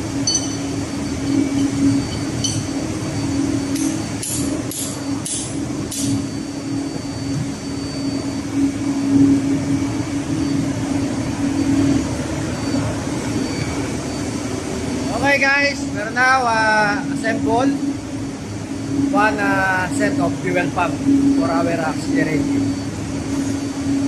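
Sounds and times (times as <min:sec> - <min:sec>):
machinery humming: 0:00.0 - 0:24.0
light metallic clinks: 0:00.3 - 0:00.7.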